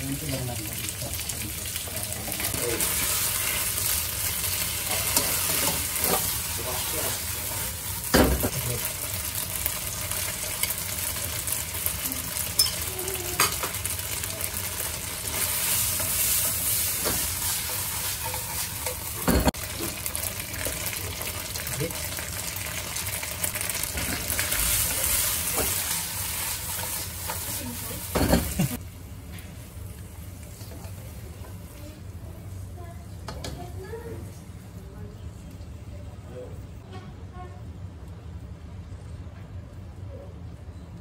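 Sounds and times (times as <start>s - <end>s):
shrimp sizzling in oil: 0.0s - 32.4s.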